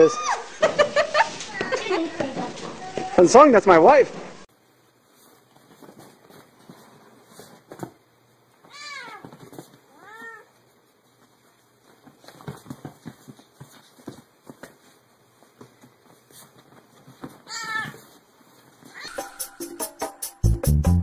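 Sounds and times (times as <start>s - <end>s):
light taps and scuffles: 4.8s - 19.0s
cat meowing: 8.7s - 10.5s, 17.5s - 18.0s, 18.9s - 19.4s.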